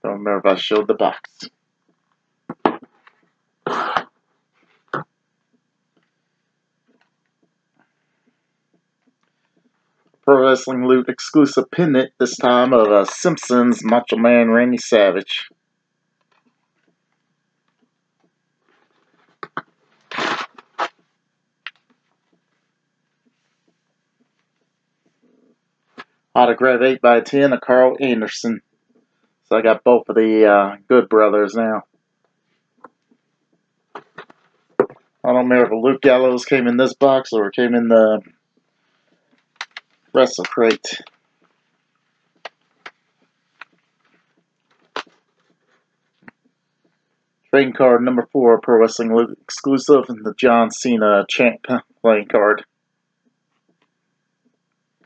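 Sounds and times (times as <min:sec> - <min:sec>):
plastic packaging crinkling: 0:18.7 - 0:20.9.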